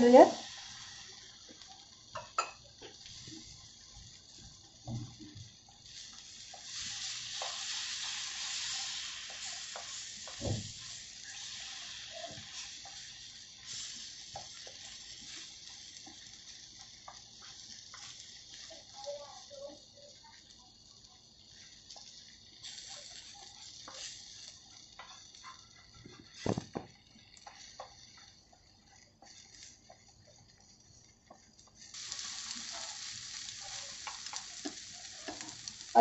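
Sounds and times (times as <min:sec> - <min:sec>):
eggs sizzling in hot oil: 0:00.0 - 0:36.0
spatula clicking and scraping: 0:05.7 - 0:18.7, 0:21.6 - 0:26.4, 0:27.2 - 0:36.0.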